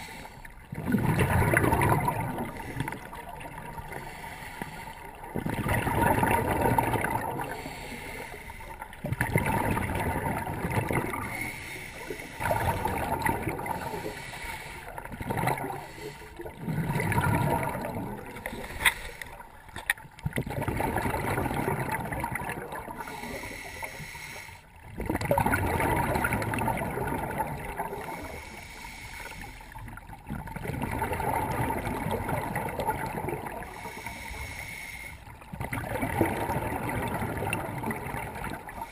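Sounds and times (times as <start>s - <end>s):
exhaled bubbles rushing: 0.6s - 4.2s, 5.1s - 7.8s, 9.0s - 11.5s, 12.4s - 14.3s, 14.9s - 18.7s, 19.6s - 23.2s, 24.8s - 28.3s, 29.9s - 34.0s, 35.4s - 38.9s
regulator inhalations: 4.0s - 5.0s, 7.6s - 8.8s, 11.2s - 12.6s, 13.8s - 15.0s, 15.7s - 16.5s, 23.0s - 24.7s, 28.1s - 29.8s, 33.7s - 35.4s.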